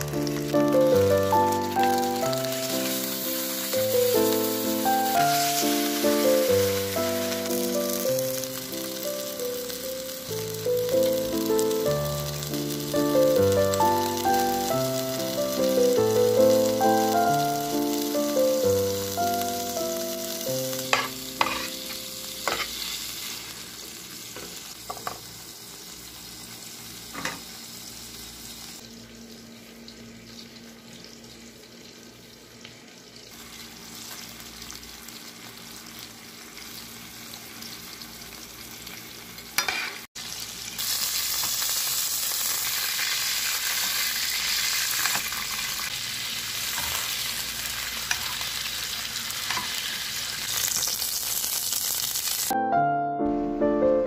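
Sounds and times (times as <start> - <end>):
background music melody: 0.0 - 22.3, 52.5 - 54.0
steak sizzling in butter: 0.0 - 28.8, 33.3 - 52.6.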